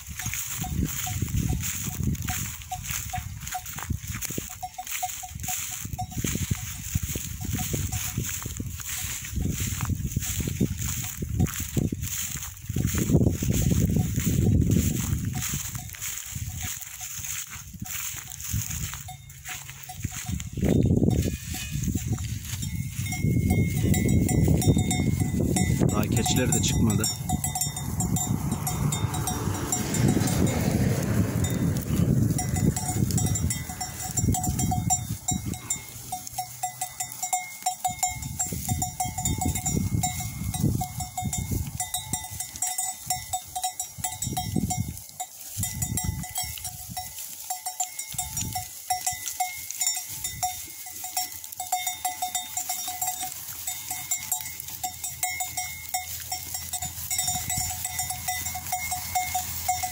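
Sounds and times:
sheep bells clinking: 0:00.0 - 0:59.9
low rumbling noise: 0:27.0 - 0:36.3.

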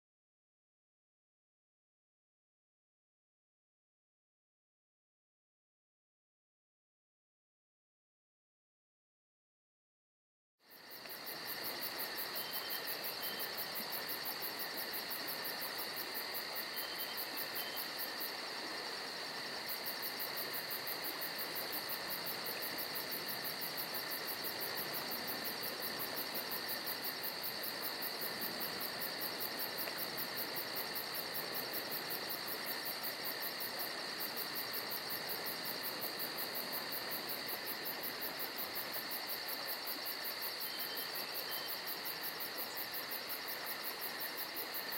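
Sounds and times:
crickets trilling: 0:10.6 - 0:44.9.

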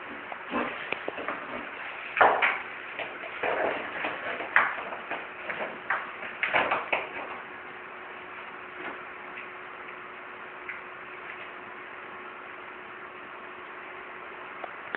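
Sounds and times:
toilet brush scraping on tiles: 0:00.0 - 0:07.4.

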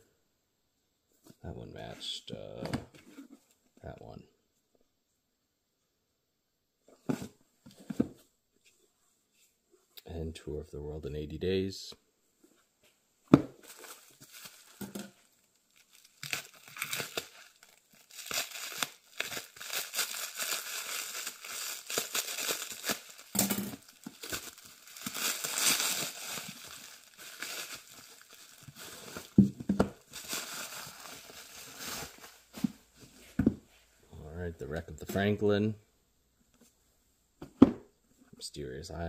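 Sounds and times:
plastic wrap tearing and crinkling: 0:13.6 - 0:29.4, 0:30.0 - 0:32.6.

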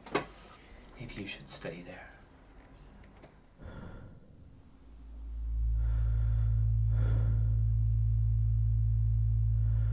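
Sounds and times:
soft breaths: 0:02.8 - 0:07.7
deep low drone: 0:03.5 - 0:09.9.

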